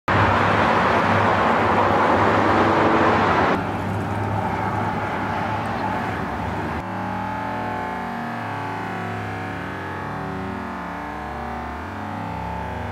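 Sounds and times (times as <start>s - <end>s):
road traffic roar: 0.1s - 12.9s.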